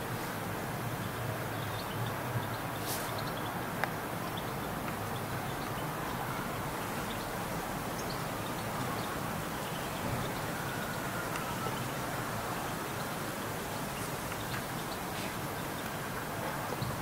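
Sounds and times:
distant traffic rumble: 0.0 - 17.0
brief hiss: 2.8 - 3.2.

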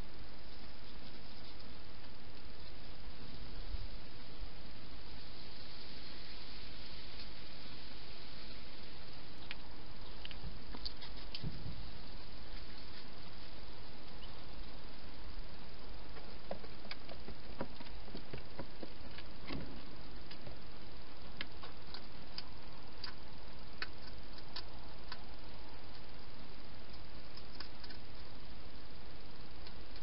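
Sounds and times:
steady hiss: 0.0 - 30.0
hedgehog eating clicks and crunches: 21.3 - 26.3, 26.9 - 28.4.

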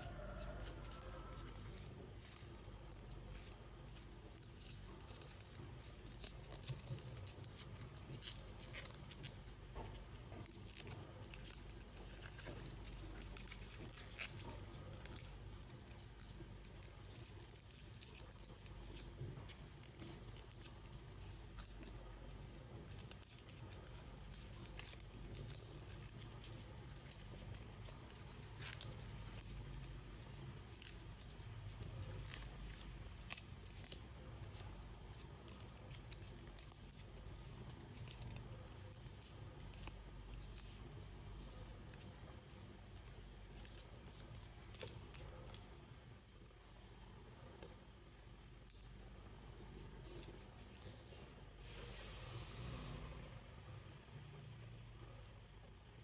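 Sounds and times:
paper rustling and folding: 0.0 - 46.3
faint low hum: 0.0 - 56.0.

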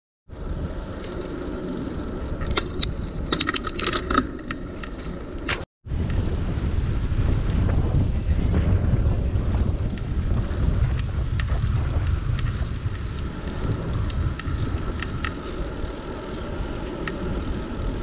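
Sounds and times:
metallic clicks and rattles: 2.4 - 5.6
wind rushing over microphone: 5.4 - 18.0.

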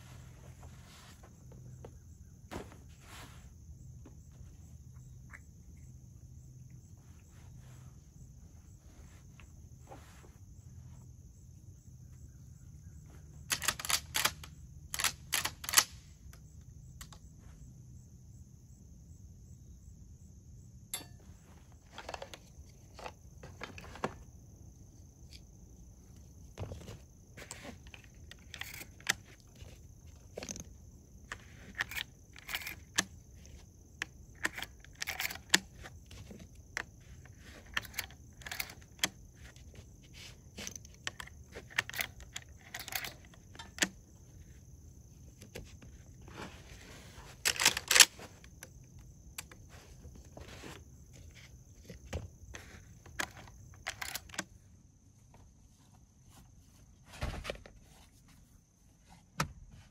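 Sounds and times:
metallic clicks of rifle loading: 13.4 - 17.2, 27.8 - 29.4, 31.3 - 36.3, 37.2 - 39.2, 40.6 - 44.0, 47.4 - 49.6, 53.0 - 54.5.

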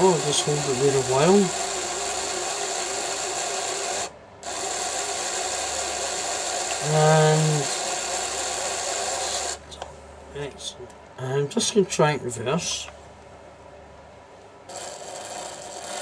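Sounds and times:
small motor and gear whirr: 0.0 - 9.6, 14.7 - 16.0.

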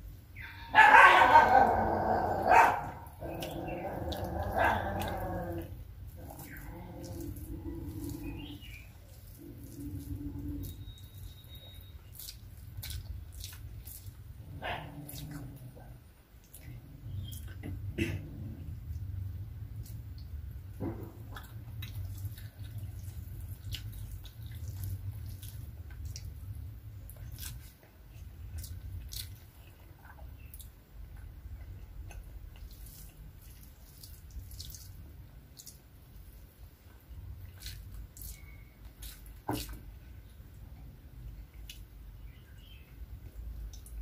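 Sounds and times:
fingers squishing rice: 2.6 - 14.2, 19.7 - 40.0
wet chewing mouth clicks: 3.3 - 14.2, 15.0 - 19.1, 19.7 - 35.9, 36.9 - 39.9, 41.4 - 42.7.

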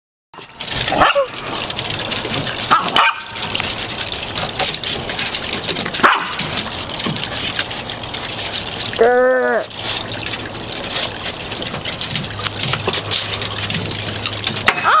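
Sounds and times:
small dogs barking: 2.7 - 3.4, 6.0 - 6.4.

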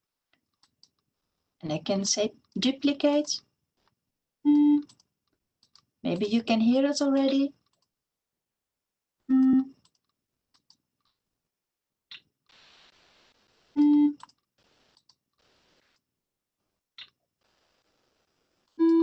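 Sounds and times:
short electronic tones: 4.5 - 4.9, 9.3 - 9.8, 13.8 - 14.3, 18.8 - 19.0
faint mouse clicks: 9.4 - 11.2.

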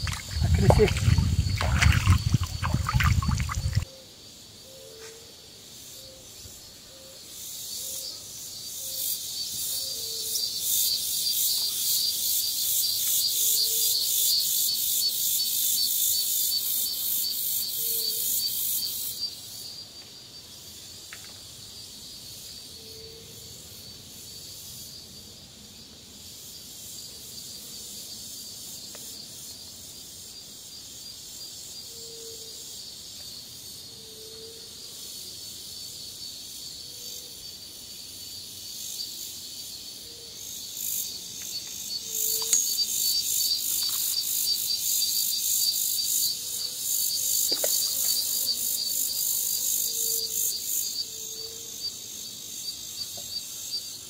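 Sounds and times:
cicada buzzing: 0.0 - 3.9, 37.7 - 54.0
high insect chorus: 0.0 - 54.0.

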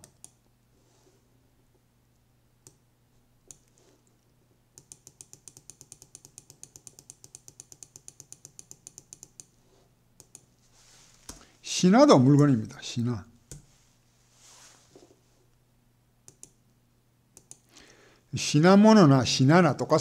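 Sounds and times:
computer mouse clicks: 0.0 - 0.4, 3.5 - 4.2, 4.8 - 9.5, 10.2 - 10.5, 16.2 - 16.6, 17.4 - 17.7.

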